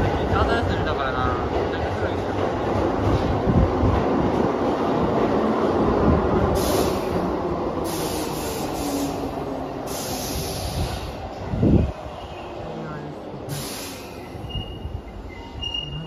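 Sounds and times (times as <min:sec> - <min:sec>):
electric train rumbling past: 0:00.0 - 0:16.0
train air hiss: 0:06.5 - 0:11.8, 0:13.4 - 0:15.0.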